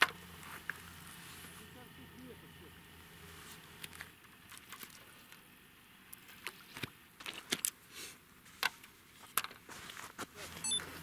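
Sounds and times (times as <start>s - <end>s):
clicks and knocks of fishing tackle: 6.2s - 7.8s.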